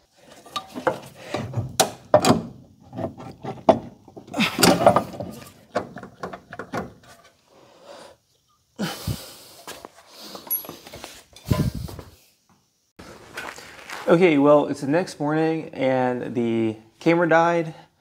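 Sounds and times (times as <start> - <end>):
heavy metal parts clanking: 0.3 - 7.3.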